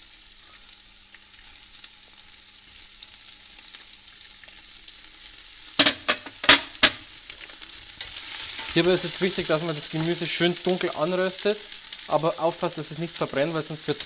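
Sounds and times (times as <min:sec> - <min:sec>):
vegetables sizzling in hot oil: 0:00.0 - 0:14.0
clatters at pot: 0:05.8 - 0:07.6.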